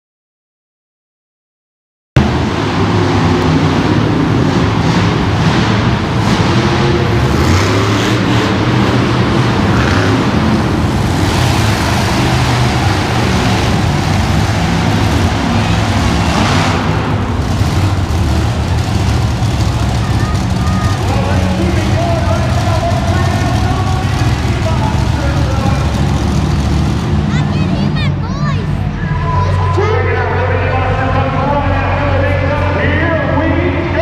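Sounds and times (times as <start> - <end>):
monster truck engines running: 2.2 - 34.0.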